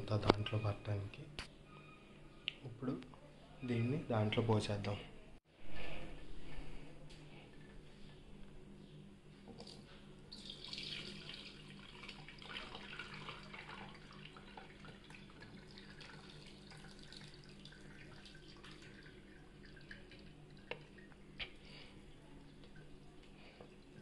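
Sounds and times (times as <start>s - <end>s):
liquid splashing and trickling: 9.6s - 21.8s.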